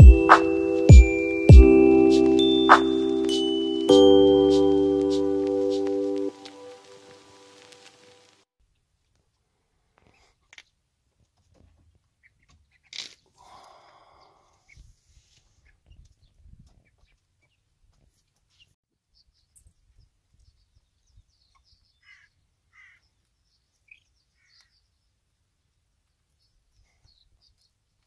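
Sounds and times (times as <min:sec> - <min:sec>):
young chickens calling: 0:19.2 - 0:25.0.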